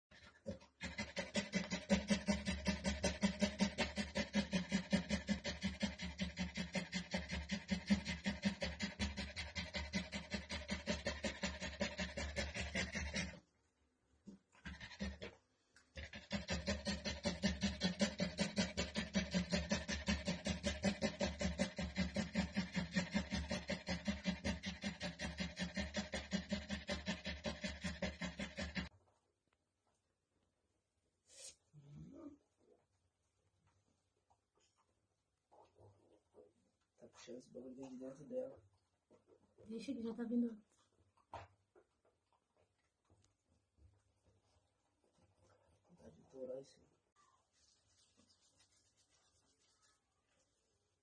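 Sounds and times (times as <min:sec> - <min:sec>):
dog panting fast: 0:00.1 - 0:13.4, 0:14.6 - 0:15.4, 0:16.0 - 0:28.9.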